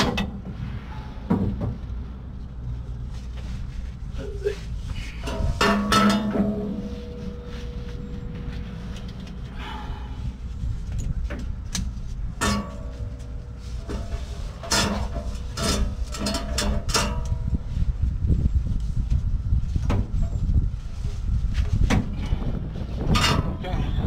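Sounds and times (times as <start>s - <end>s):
exhaust pipe knocking and clanking: 0.0s - 0.6s, 1.2s - 2.2s, 5.1s - 17.8s, 21.8s - 24.0s
steady low rumble: 0.0s - 24.0s.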